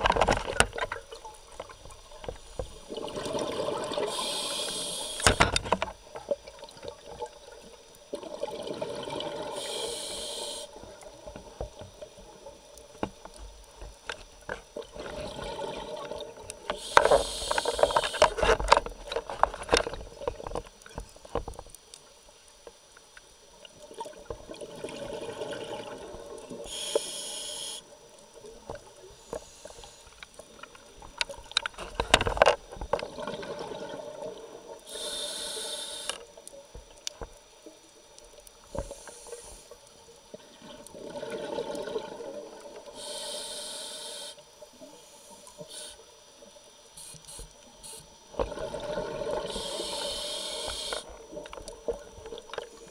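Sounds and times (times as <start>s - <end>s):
bubbling exhale underwater: 2.9s - 5.0s, 8.1s - 9.7s, 40.6s - 42.9s, 48.4s - 50.1s
regulator hissing inhale: 4.0s - 5.6s, 9.5s - 11.0s, 16.7s - 18.4s, 26.6s - 28.0s, 29.1s - 30.4s, 34.8s - 36.4s, 38.6s - 40.0s, 42.8s - 46.2s, 47.0s - 48.2s, 49.3s - 51.2s.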